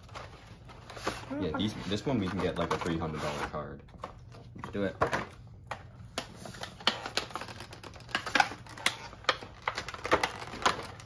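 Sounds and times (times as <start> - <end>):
plastic packaging crackling: 6.4 - 11.0.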